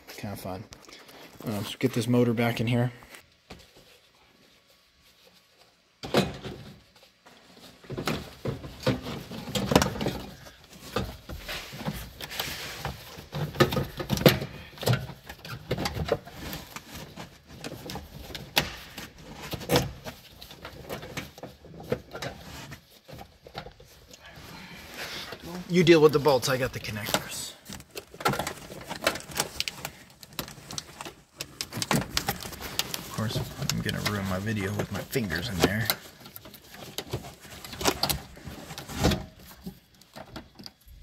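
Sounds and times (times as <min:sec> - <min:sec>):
plastic parts clicking and scraping: 0:06.0 - 0:41.0.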